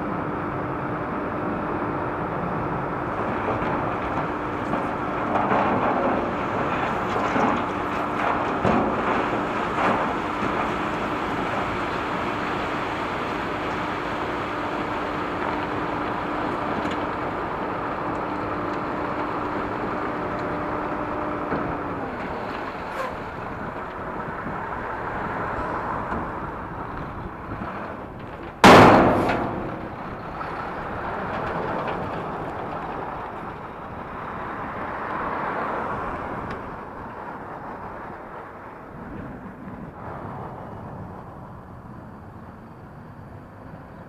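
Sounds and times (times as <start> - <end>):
loud thump: 28.6 - 29.9.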